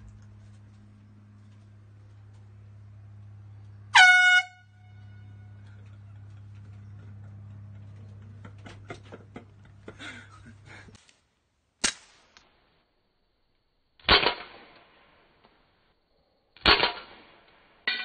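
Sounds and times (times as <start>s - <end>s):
steady low hum: 0.0s - 14.0s
loud horn blast: 3.8s - 5.8s
pistol shot: 11.8s - 12.5s, 14.0s - 15.1s, 16.6s - 17.7s.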